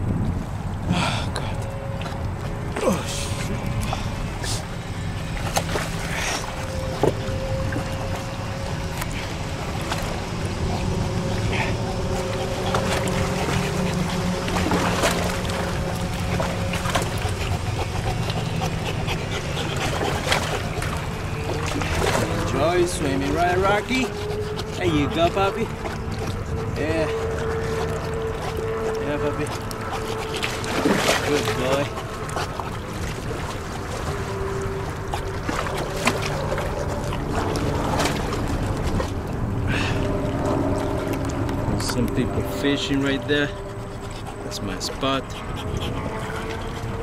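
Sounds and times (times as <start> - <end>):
wind on microphone: 0.0 - 5.2, 45.2 - 47.0
steady low hum: 0.0 - 47.0
water sloshing and splashing: 0.0 - 47.0
wind rumbling on microphone: 0.0 - 47.0.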